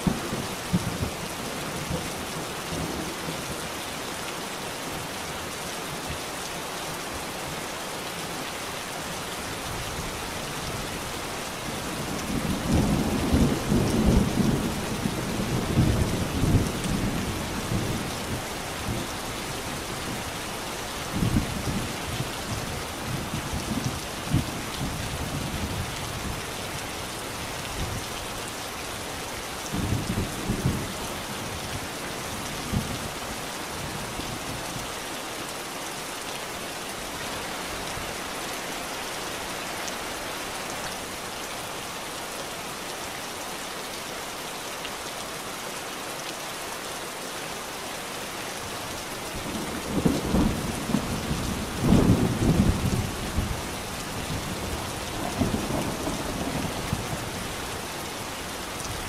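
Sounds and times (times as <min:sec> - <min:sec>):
steady rain: 0:00.0 - 0:59.0
thunder rumbling: 0:54.2 - 0:57.4.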